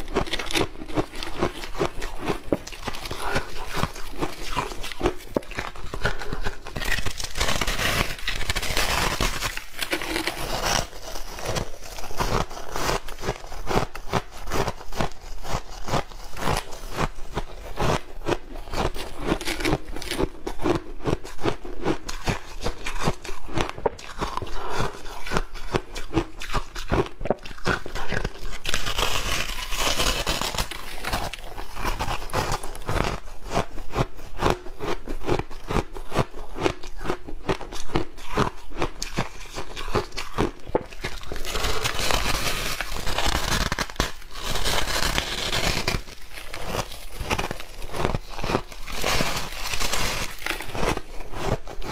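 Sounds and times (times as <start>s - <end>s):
ice crushed by hand: 0.0s - 33.2s, 34.8s - 51.9s
ice crunching being chewed: 0.0s - 51.9s.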